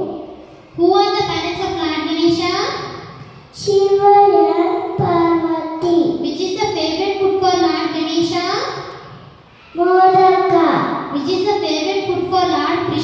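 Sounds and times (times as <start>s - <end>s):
child singing into a microphone: 3.6s - 7.4s.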